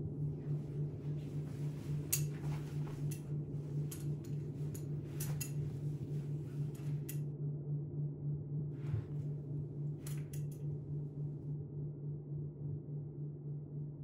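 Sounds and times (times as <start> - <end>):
steady low hum: 0.0 - 14.0
clothes handling clicks: 1.2 - 7.2, 9.9 - 10.7.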